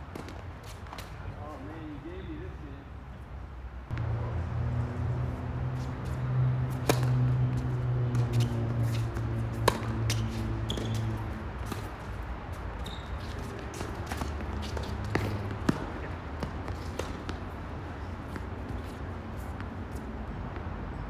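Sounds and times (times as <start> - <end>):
racket hitting tennis ball: 5.8 - 12.1, 13.2 - 19.7
tennis ball bouncing: 5.8 - 12.1, 12.8 - 19.8
shoe squeaks: 10.1 - 11.3, 12.7 - 16.1.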